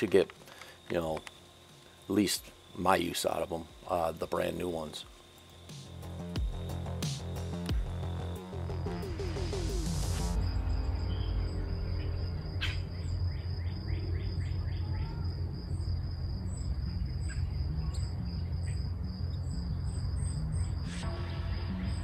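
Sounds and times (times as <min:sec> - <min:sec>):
high insect drone: 0:00.0 - 0:22.0
low rumble: 0:10.2 - 0:20.3
small birds chirping: 0:11.0 - 0:22.0.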